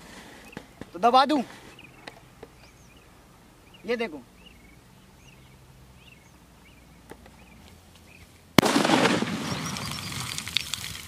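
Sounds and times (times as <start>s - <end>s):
small birds chirping: 0.0s - 8.5s, 9.3s - 11.0s
crackling spattering noise: 8.0s - 11.0s
firecracker bang: 8.6s - 11.0s.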